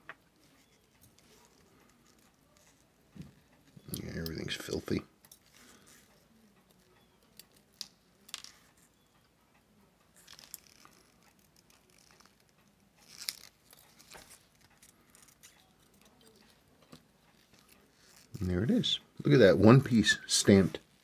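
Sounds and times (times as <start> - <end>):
tweezers clicking on metal parts: 3.5 - 18.4.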